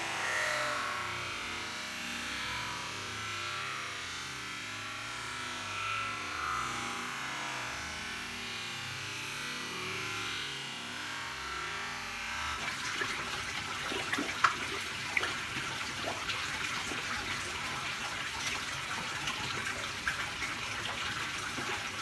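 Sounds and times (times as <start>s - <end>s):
pond water trickling: 11.4s - 22.0s
small sharp splashes: 12.4s - 22.0s.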